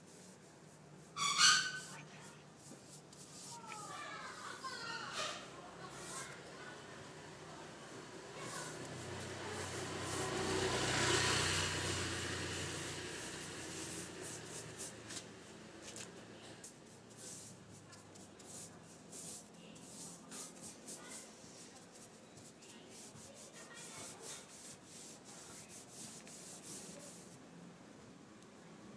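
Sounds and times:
brush and rag rubbing wood: 0.0s - 6.5s, 8.3s - 27.4s
passing engine hum: 7.0s - 15.4s.

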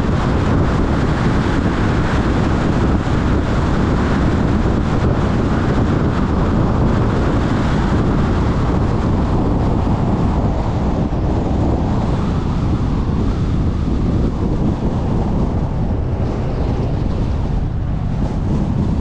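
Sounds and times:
wind buffeting microphone: 0.0s - 19.0s
wind rush: 0.0s - 19.0s.

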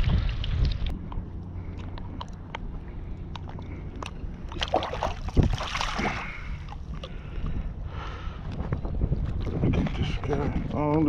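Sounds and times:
water splashing and sloshing: 0.0s - 7.8s
wind rumble on microphone: 0.0s - 11.0s.

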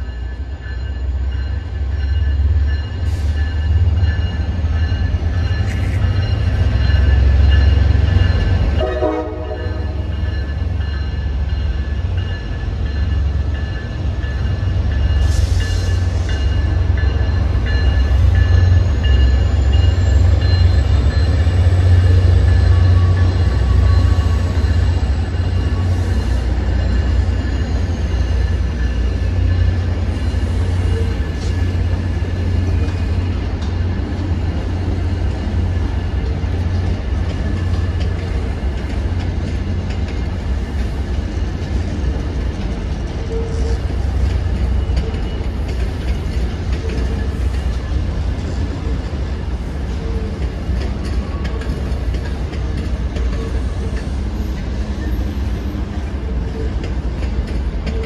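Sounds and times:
train rumble: 0.0s - 58.0s.

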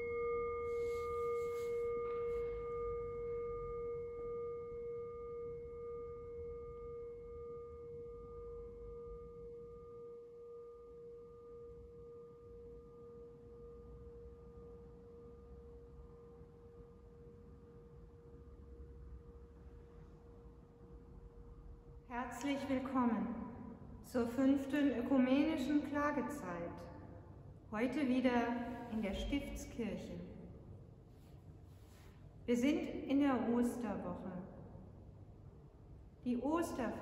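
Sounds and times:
singing bowl ringing: 0.0s - 20.2s.

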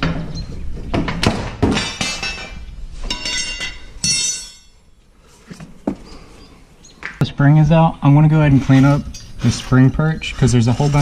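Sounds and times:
metal clanks and knocks: 0.0s - 4.8s.

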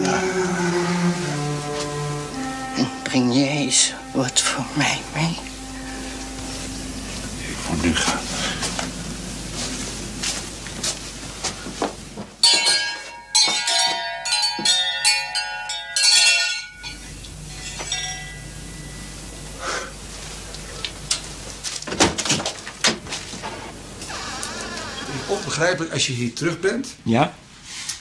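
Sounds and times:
bell ringing: 0.8s - 9.1s, 12.4s - 19.6s.

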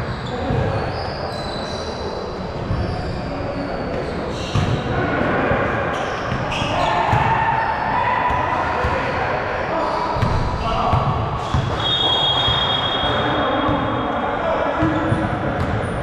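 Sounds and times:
basketball bouncing on court: 0.0s - 0.9s, 3.9s - 4.9s, 6.3s - 7.4s, 10.2s - 14.0s, 14.8s - 16.0s
sneaker squeaks: 0.0s - 5.0s, 5.9s - 9.0s, 9.7s - 14.1s, 14.8s - 16.0s.

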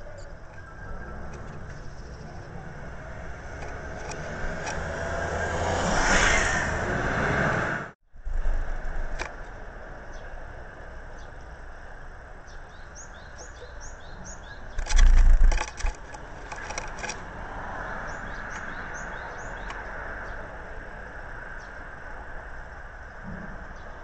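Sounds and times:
small bird chirping: 0.0s - 4.2s, 12.4s - 17.1s, 17.8s - 20.5s
rustling in nest: 14.8s - 17.3s.

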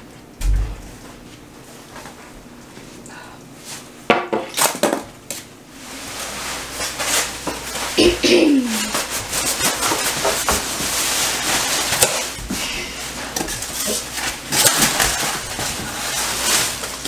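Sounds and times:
plastic bags rustling: 5.7s - 17.0s.

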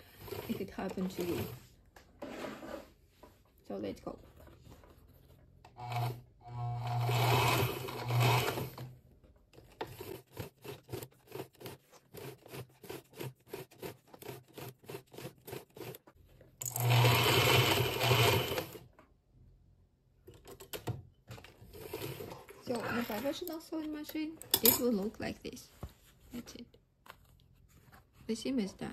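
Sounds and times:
sewing machine stitching leather: 0.0s - 1.6s, 5.7s - 18.9s, 20.5s - 23.3s.

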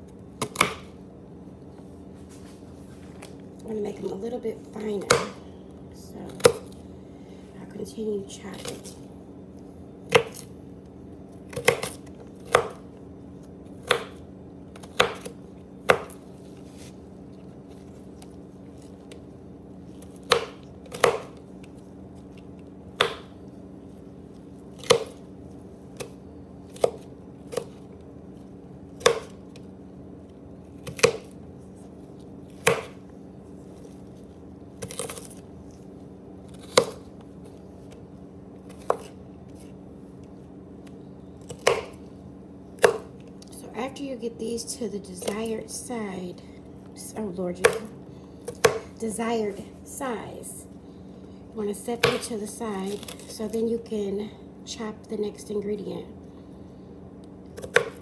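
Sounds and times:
faint steady hum: 0.0s - 58.0s
knife chopping on cutting board: 0.4s - 0.8s, 14.8s - 16.2s, 23.0s - 23.3s, 32.6s - 33.0s, 38.7s - 39.1s, 41.5s - 42.0s, 42.8s - 43.1s, 48.4s - 48.9s, 57.6s - 58.0s.

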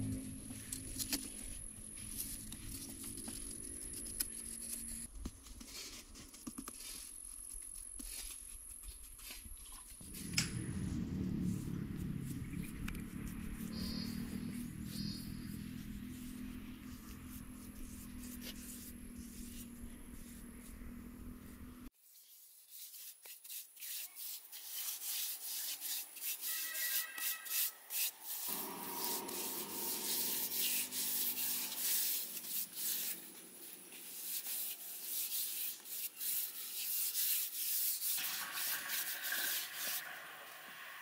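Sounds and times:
rough scraping strokes: 10.0s - 21.9s, 22.8s - 41.0s.

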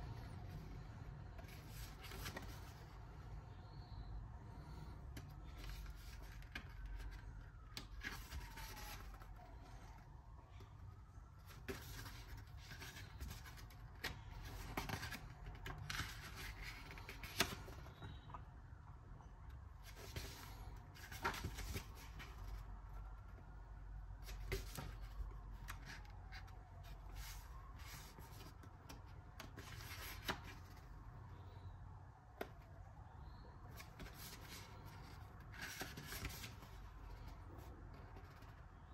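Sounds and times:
paper pages rustling: 0.1s - 3.0s, 4.6s - 10.0s, 11.4s - 18.4s, 19.8s - 23.2s, 24.2s - 30.9s, 33.7s - 38.6s.

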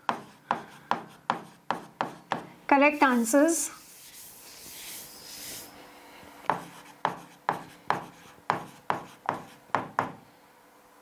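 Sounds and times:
stylus rubbing on a screen: 3.0s - 5.8s.

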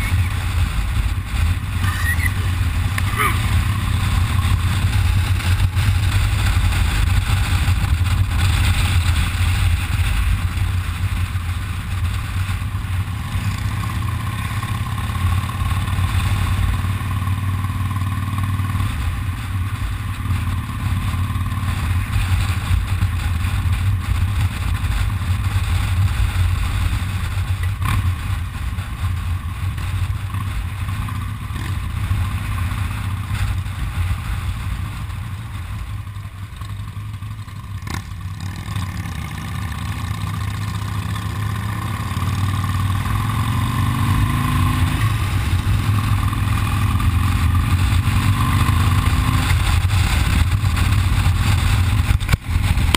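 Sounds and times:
motorcycle engine running: 0.0s - 52.9s
road noise: 0.0s - 52.9s
wind noise: 43.1s - 52.9s.

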